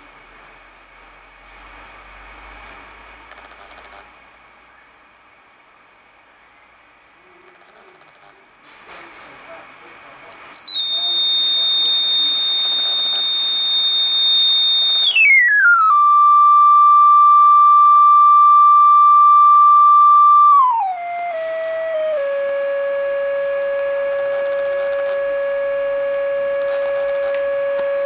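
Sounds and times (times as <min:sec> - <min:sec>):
sine wave test tone: 0:03.3 - 0:04.1, 0:09.1 - 0:28.0.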